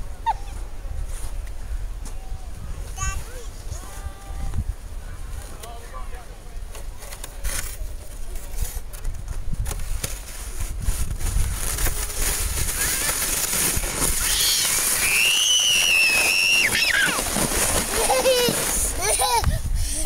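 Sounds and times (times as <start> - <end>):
wind rumble on microphone: 0.0 - 5.6, 7.6 - 14.5, 18.8 - 20.0
child squealing: 14.1 - 19.6.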